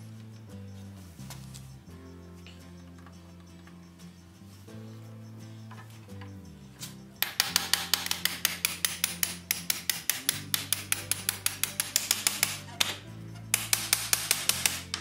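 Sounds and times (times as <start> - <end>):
hammer blows on iron bolt: 7.2 - 15.0.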